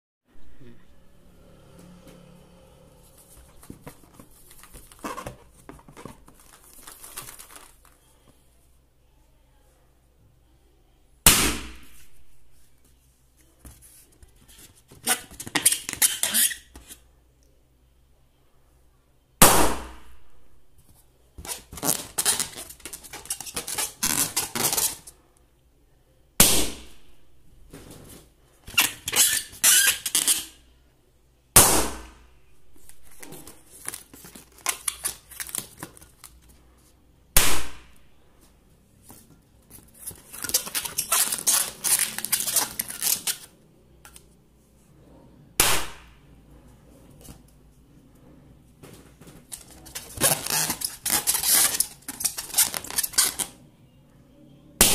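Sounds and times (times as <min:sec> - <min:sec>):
balloons rustling and crinkling: 0:03.1 - 0:08.5, 0:20.8 - 0:25.2, 0:32.7 - 0:37.0, 0:38.2 - 0:43.6, 0:48.7 - 0:53.6
balloons popping: 0:11.2 - 0:12.0, 0:21.4 - 0:25.0, 0:28.7 - 0:30.5, 0:40.1 - 0:43.5, 0:49.4 - 0:53.5.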